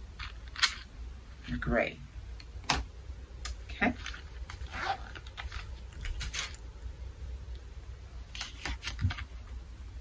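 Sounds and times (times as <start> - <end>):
pencils rattling in a case: 3.9 - 6.6.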